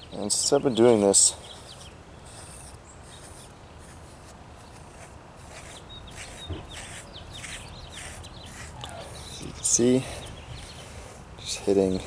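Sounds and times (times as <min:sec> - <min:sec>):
scraper rubbing on oiled skin: 0:00.8 - 0:09.7.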